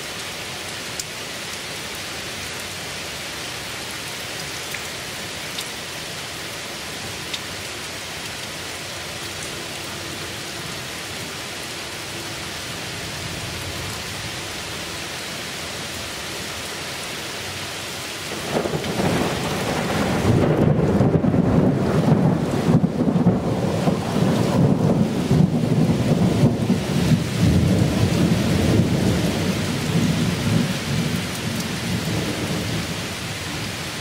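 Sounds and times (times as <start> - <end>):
heavy rain: 0.0 - 34.0
thunder rumble: 18.3 - 33.0.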